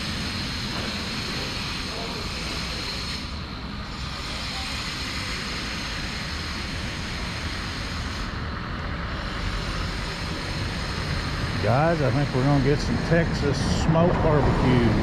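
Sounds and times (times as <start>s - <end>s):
street noise rushing: 0.0s - 15.0s
low unsteady rumble: 11.1s - 15.0s.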